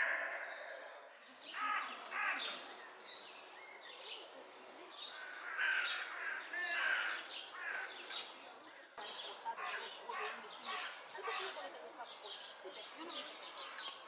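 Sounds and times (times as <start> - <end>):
crows calling: 0.0 - 2.7, 5.1 - 8.0, 9.5 - 11.6.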